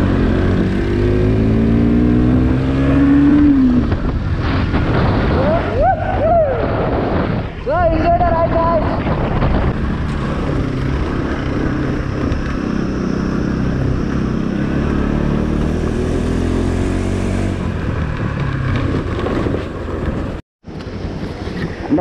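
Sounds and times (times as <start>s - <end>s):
motorcycle engine on gravel road: 17.4s - 20.4s.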